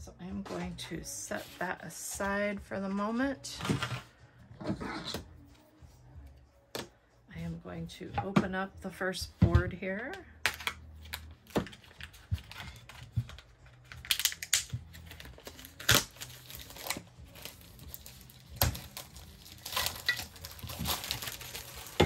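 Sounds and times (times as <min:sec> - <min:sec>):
plastic wrapping crinkling: 0:13.7 - 0:22.0.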